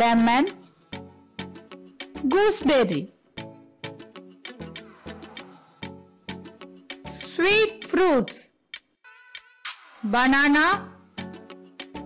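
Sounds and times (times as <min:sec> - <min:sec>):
percussive beat: 0:08.8 - 0:10.2.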